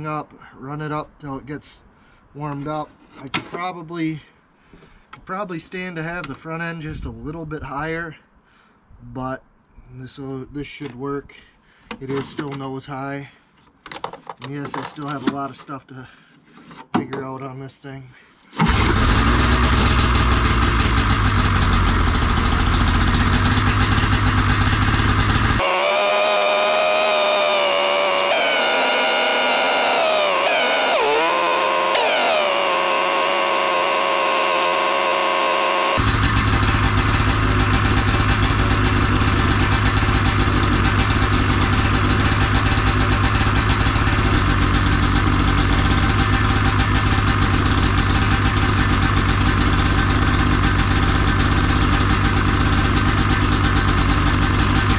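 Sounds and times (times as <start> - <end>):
snowmobile engine idling: 19.1 - 54.9.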